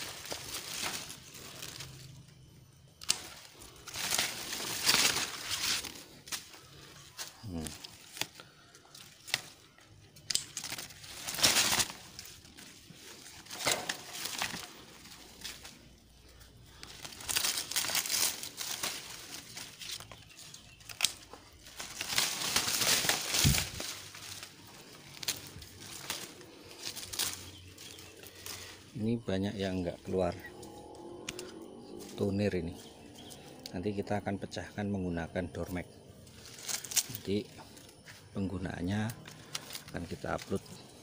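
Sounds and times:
leaves rustling and crinkling: 0.0 - 41.0
pruning shears clicking: 3.0 - 6.6, 7.2 - 12.4, 16.8 - 28.8, 31.2 - 31.6.

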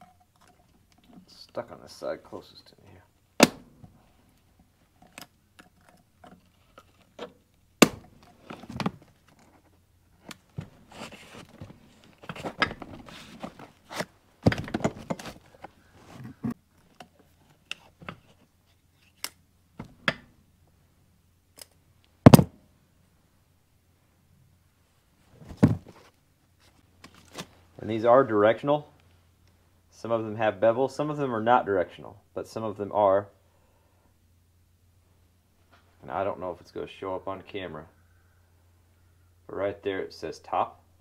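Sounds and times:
rustling handling: 8.1 - 19.2, 25.2 - 27.7.

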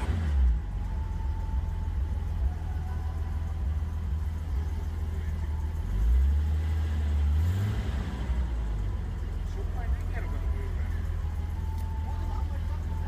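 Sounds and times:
car engine idling inside cabin: 0.0 - 13.0.

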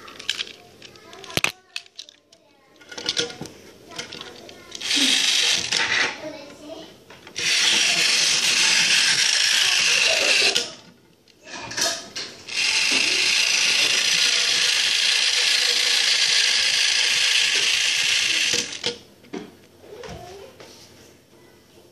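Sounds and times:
toy clicks: 0.1 - 5.9, 7.4 - 10.8, 12.5 - 19.0
toy motor whirring: 2.8 - 6.3, 7.4 - 19.0.

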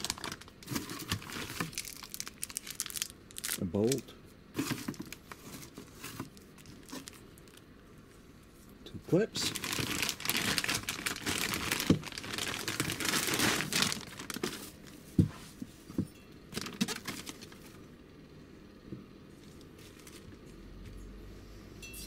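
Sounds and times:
plastic bag crinkling: 0.0 - 4.0, 4.6 - 7.6, 9.4 - 14.9, 16.6 - 17.8.

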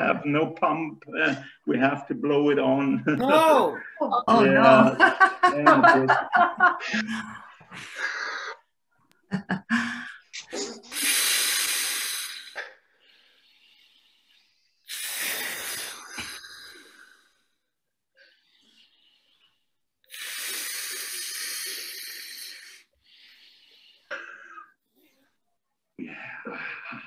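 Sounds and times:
forceful breaths blown out: 9.8 - 25.0.

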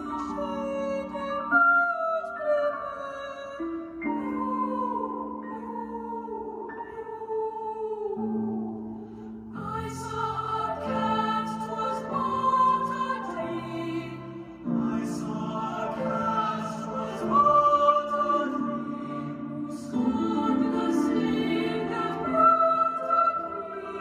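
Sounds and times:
voices singing sustained notes: 0.0 - 24.0.

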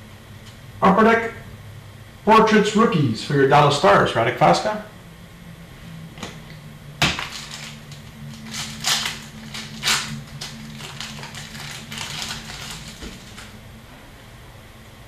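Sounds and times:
low hum: 0.0 - 15.0
cards swishing and crinkling: 7.1 - 13.6.

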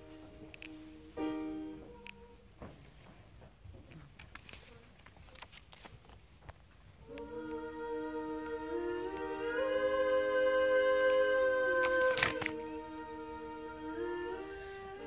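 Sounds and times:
faint clicks and rustles: 1.8 - 7.0
female voices humming in harmony: 7.0 - 15.0.

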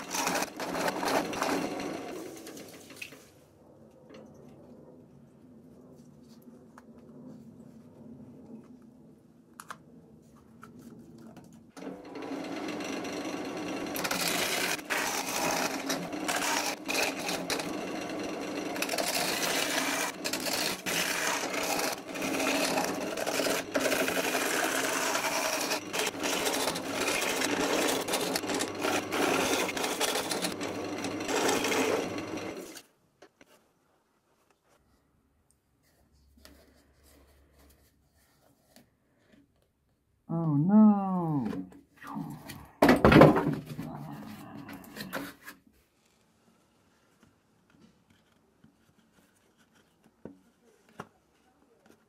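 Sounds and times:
gouge cutting spinning wood: 0.0 - 2.2, 11.8 - 32.8
lathe motor humming: 11.8 - 32.8.

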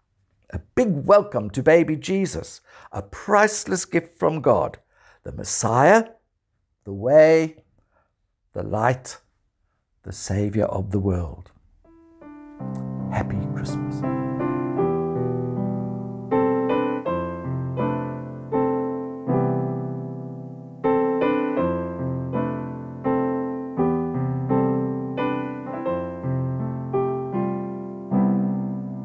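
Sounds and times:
gentle piano music: 11.9 - 29.0.

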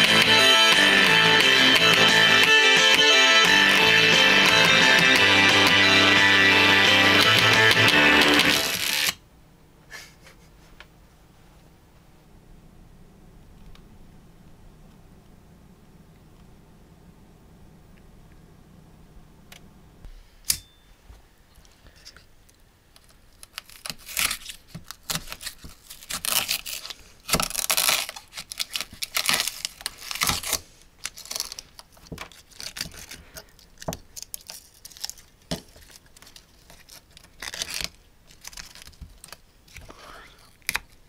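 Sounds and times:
knife tearing paper cone: 23.4 - 41.0.

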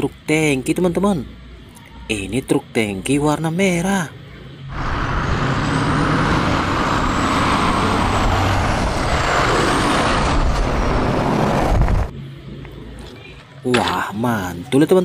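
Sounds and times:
lorries driving past: 3.1 - 14.1.

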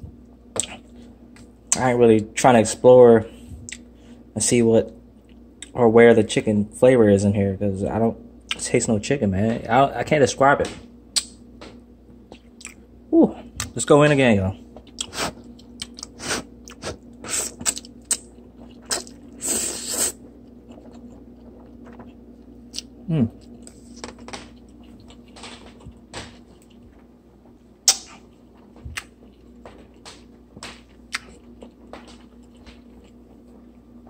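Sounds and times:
person chewing: 0.6 - 1.5, 12.3 - 13.8, 14.8 - 27.0, 27.8 - 34.0
noodle slurp: 18.8 - 20.2.

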